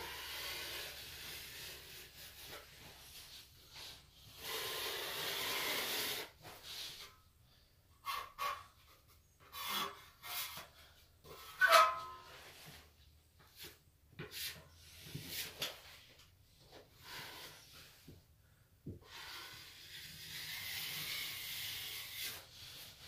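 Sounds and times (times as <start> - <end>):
knife scraping wet plaster: 19.1 - 23.0.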